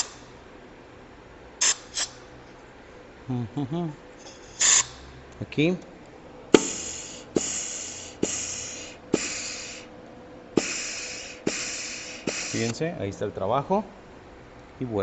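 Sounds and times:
compressed air blasts: 0:00.0 - 0:00.2, 0:01.6 - 0:02.2, 0:04.2 - 0:05.0, 0:06.5 - 0:09.9, 0:10.5 - 0:12.8.

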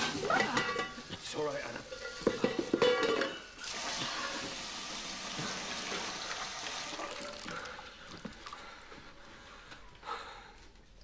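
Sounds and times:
metal saucepan clattering: 0:00.0 - 0:04.5.

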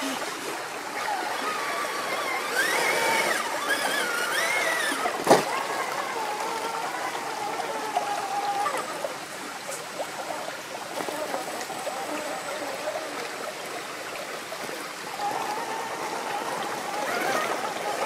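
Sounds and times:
stream water running over rock: 0:00.0 - 0:18.0
electric motor whining: 0:00.8 - 0:09.1, 0:15.0 - 0:18.0.

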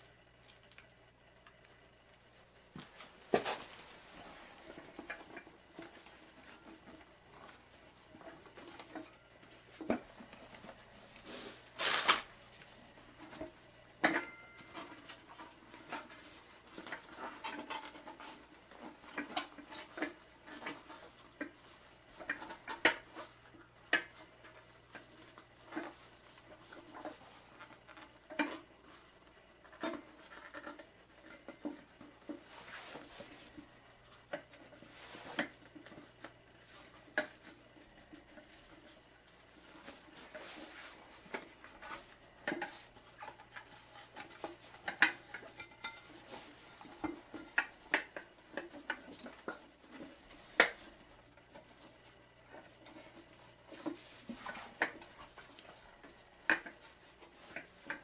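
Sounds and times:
clinks and knocks on metal tire changer: 0:14.0 - 0:14.6.

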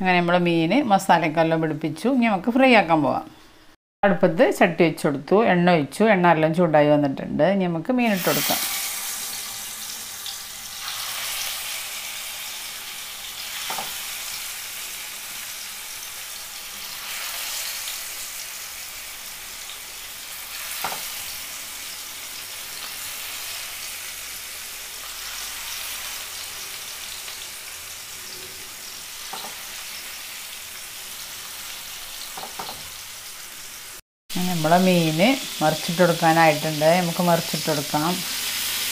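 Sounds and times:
fish frying in hot oil: 0:08.2 - 0:38.9.

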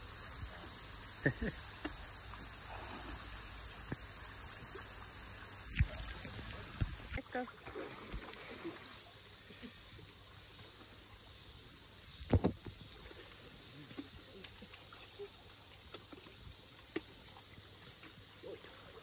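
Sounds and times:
muddy water sloshing: 0:05.8 - 0:09.1.

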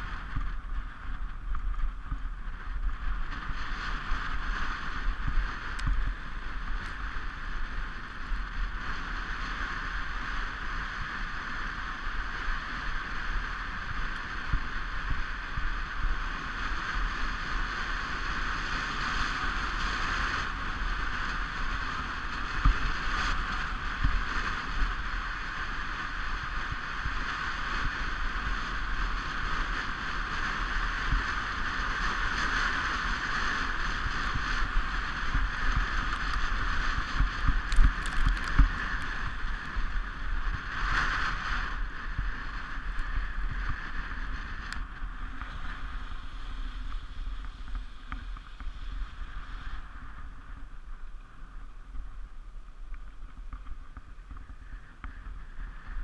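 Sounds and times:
low rumble: 0:00.0 - 0:09.1
toboggan runners hissing on snow: 0:03.0 - 0:51.6.

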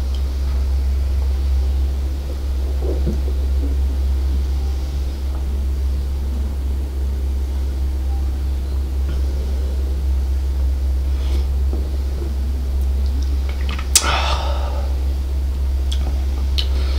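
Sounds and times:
low rumbling hum: 0:00.0 - 0:16.9
man swallowing beer: 0:09.0 - 0:16.8.

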